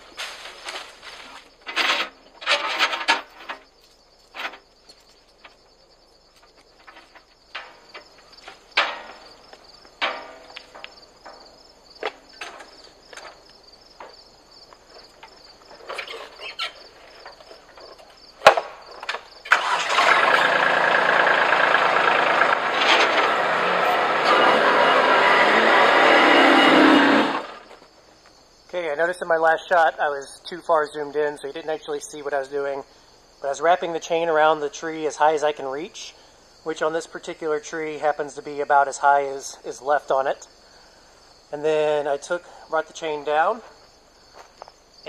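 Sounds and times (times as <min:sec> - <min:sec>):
diesel tractor engine running: 0:19.4 - 0:27.8.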